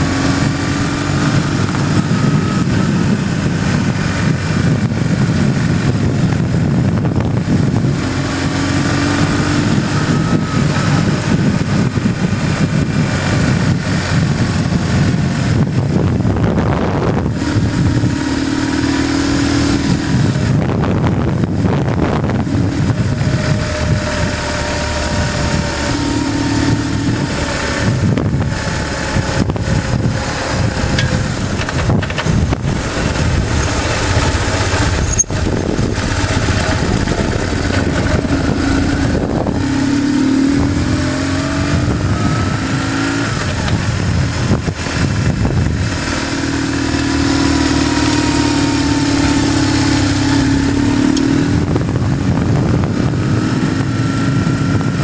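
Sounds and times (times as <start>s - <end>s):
motorcycle engine running: 0.0s - 55.0s
wind and road noise: 0.0s - 55.0s.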